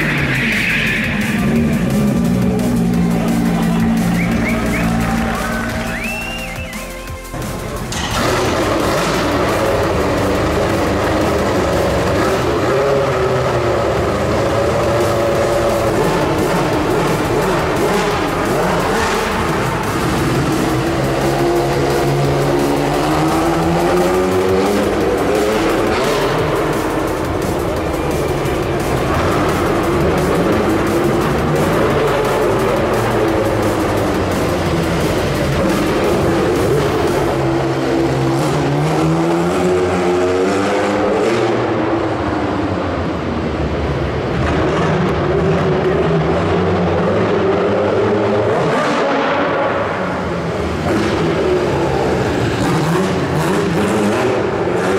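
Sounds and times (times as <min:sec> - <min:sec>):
race car engine revving: 0:00.0 - 0:54.9.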